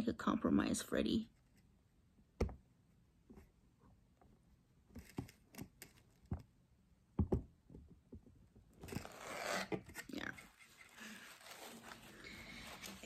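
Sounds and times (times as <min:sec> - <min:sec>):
rustling in cardboard box: 0:10.5 - 0:13.0.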